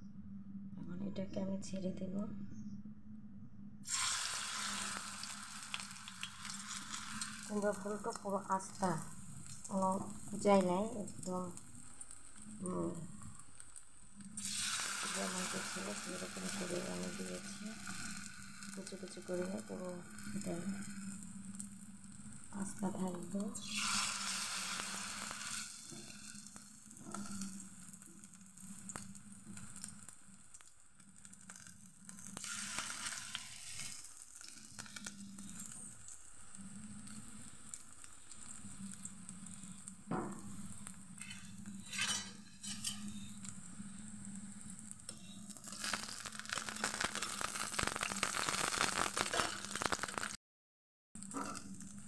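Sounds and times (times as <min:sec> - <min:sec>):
low hum: 0:00.0 - 0:03.9, 0:04.6 - 0:14.4, 0:15.1 - 0:23.7, 0:34.6 - 0:46.2
flowers frying in oil: 0:03.8 - 0:50.4, 0:51.2 - 0:52.0.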